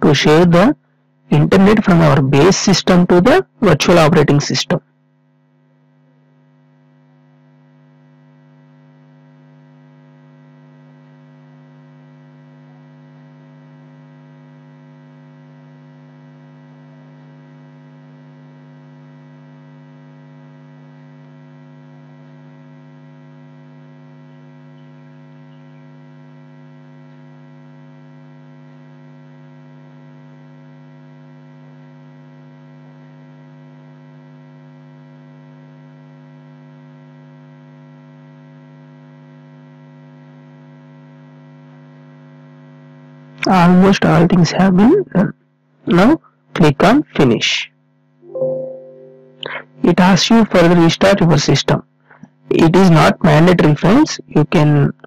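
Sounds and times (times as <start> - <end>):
electrical mains hum: 0.0 - 4.8, 43.4 - 45.3, 45.9 - 47.7, 48.4 - 55.0.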